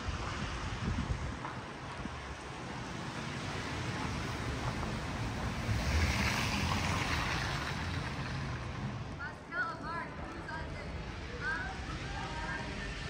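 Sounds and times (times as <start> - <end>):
tyres rushing on snow: 0.0 - 13.0.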